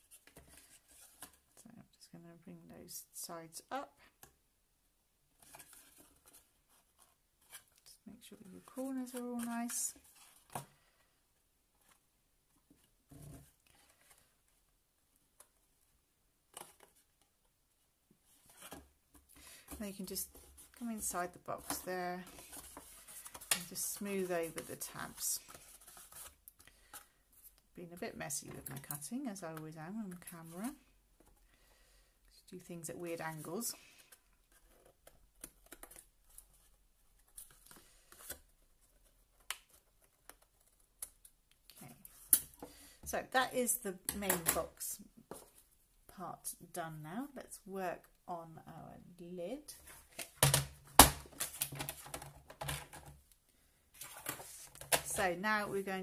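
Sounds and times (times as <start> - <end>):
card rustling: 54.0 - 55.3.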